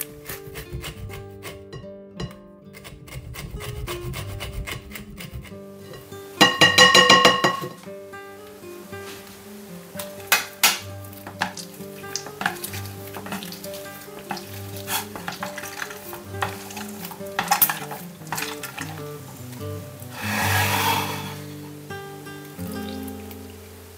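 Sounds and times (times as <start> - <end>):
orange squishing on a citrus juicer: 0.0 - 1.7, 2.7 - 6.2, 11.0 - 21.8
soft background music: 0.0 - 23.9.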